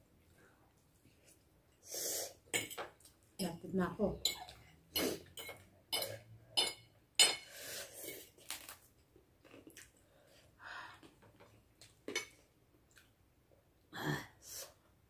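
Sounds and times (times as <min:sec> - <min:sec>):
cutlery clinking on plates: 0:02.5 - 0:03.0, 0:04.3 - 0:07.5.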